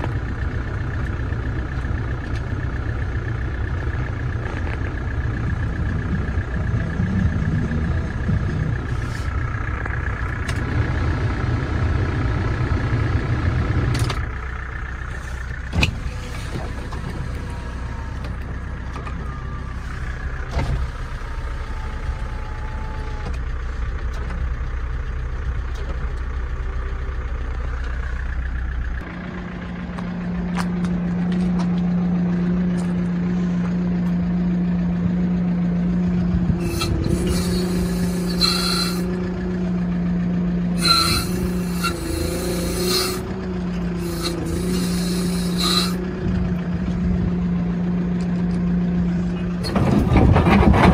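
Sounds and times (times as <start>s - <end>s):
diesel truck engine idling: 0.0s - 50.4s.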